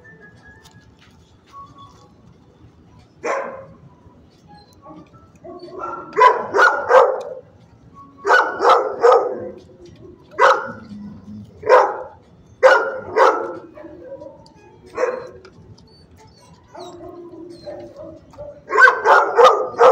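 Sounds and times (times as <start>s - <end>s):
dog barking: 3.2s - 3.8s, 4.8s - 7.5s, 8.2s - 9.6s, 10.3s - 10.9s, 11.6s - 15.4s, 16.7s - 19.9s.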